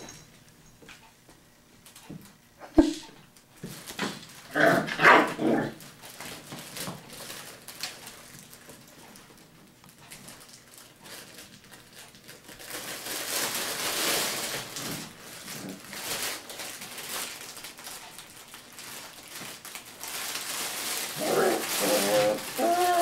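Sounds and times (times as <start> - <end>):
puppies rustling on paper: 3.6 - 4.5, 5.8 - 23.0.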